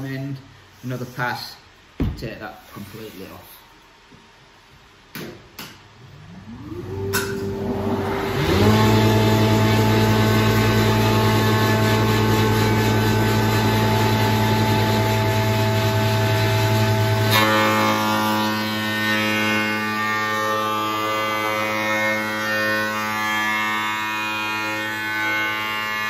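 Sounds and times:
dust extractor whine: 0:06.1 - 0:26.0
surface planer humming: 0:06.1 - 0:26.0.

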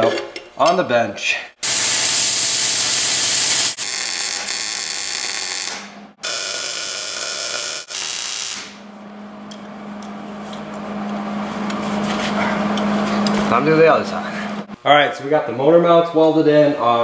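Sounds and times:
plasma cutter hissing: 0:01.6 - 0:05.7, 0:06.3 - 0:08.8
steady hum: 0:05.6 - 0:15.7.

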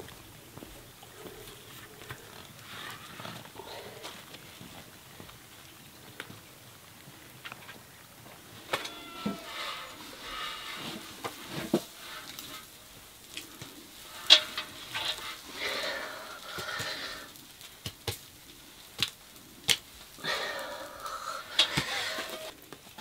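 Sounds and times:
soft sizzling hiss: 0:00.0 - 0:23.0.

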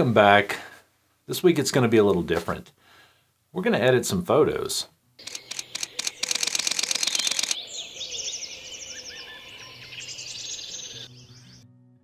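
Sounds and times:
camera shutter clicks: 0:05.2 - 0:07.6
small birds chirping: 0:05.2 - 0:11.6.

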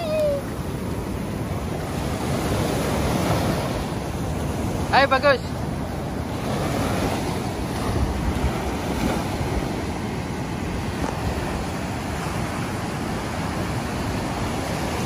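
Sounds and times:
ocean surf breaking: 0:00.0 - 0:15.0
wind rumbling on microphone: 0:05.7 - 0:15.0.

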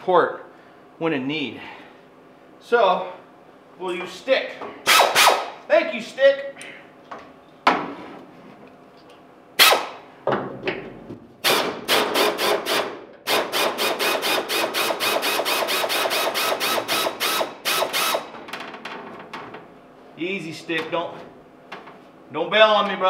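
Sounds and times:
pneumatic wrench clacking: 0:04.9 - 0:05.6, 0:09.6 - 0:10.0, 0:11.4 - 0:18.3.

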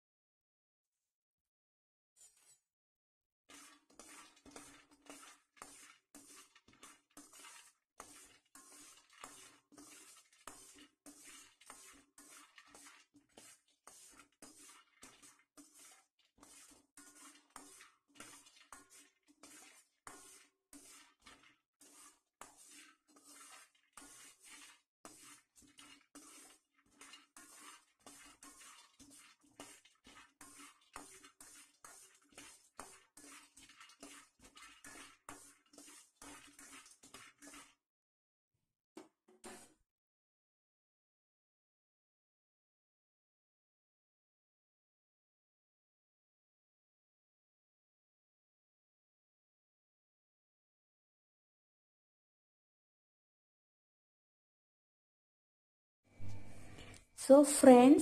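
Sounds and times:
metal spoon scraping a pan: 0:02.2 - 0:02.7, 0:03.5 - 0:37.8, 0:56.1 - 0:58.0.

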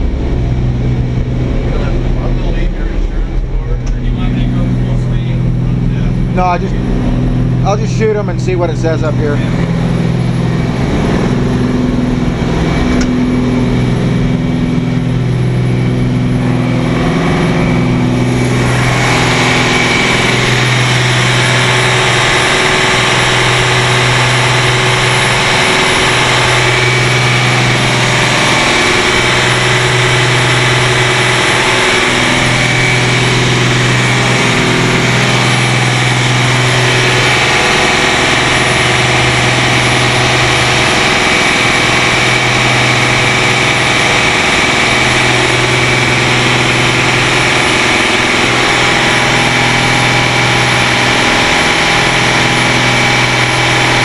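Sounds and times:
marine diesel engines running: 0:00.0 - 0:54.0.

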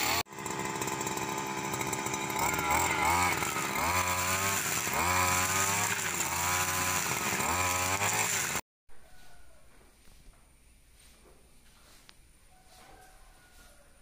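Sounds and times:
string trimmer revving: 0:00.0 - 0:08.6.

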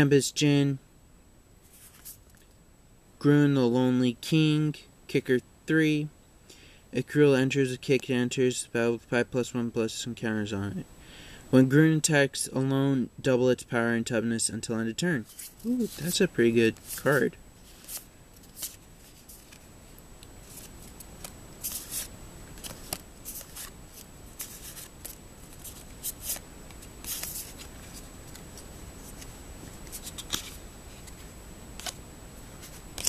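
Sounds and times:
cards rustling and flicking: 0:01.7 - 0:02.4, 0:15.2 - 0:19.7, 0:20.4 - 0:33.0.

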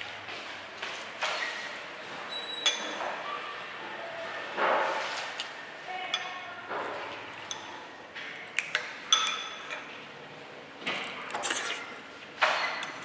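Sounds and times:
cutlery clinking against dishes: 0:02.6 - 0:03.2, 0:08.7 - 0:09.9, 0:12.4 - 0:13.0.

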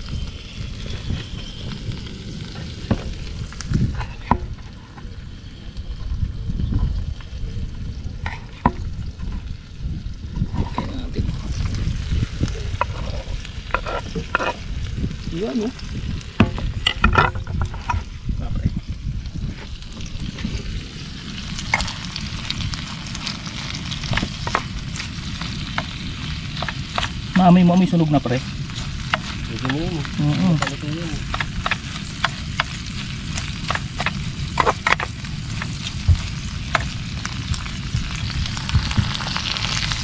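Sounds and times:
shrimp sizzling in a pan: 0:00.0 - 0:16.9, 0:18.8 - 0:40.0
utensil scraping a pan: 0:12.8 - 0:14.7, 0:23.2 - 0:37.0.

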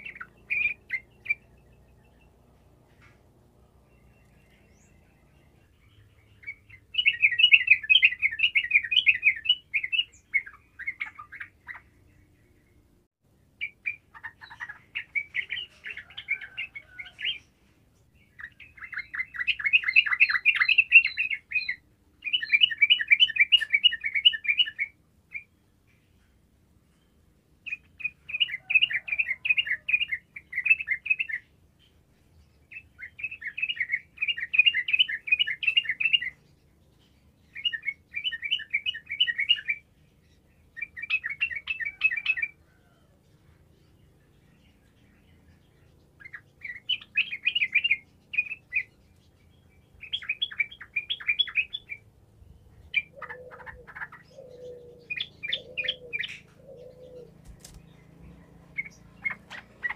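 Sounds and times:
bird singing bubbling chirps: 0:00.0 - 0:02.4.

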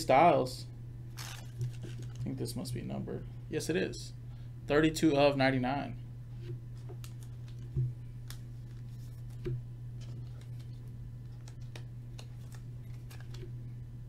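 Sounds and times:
steady low hum: 0:00.0 - 0:14.0
trading cards being handled: 0:01.2 - 0:02.5, 0:06.8 - 0:13.5.

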